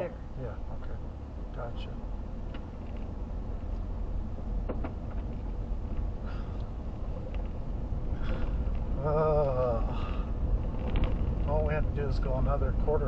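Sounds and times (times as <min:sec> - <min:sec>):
vehicle engine and road rumble: 0:00.0 - 0:13.0
light clicks or rattles: 0:02.4 - 0:03.1, 0:08.2 - 0:11.8.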